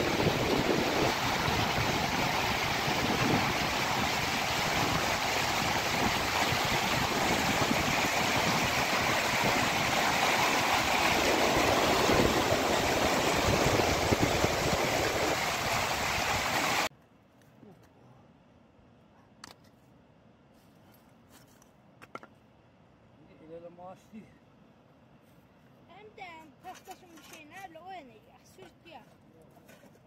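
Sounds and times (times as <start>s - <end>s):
river rushing over rocks: 0.0s - 16.9s.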